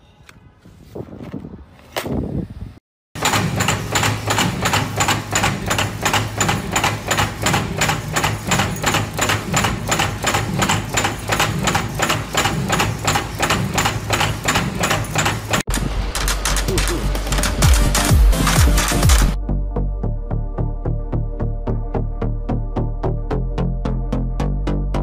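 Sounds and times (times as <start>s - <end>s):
power press clacking: 3.2s - 19.4s.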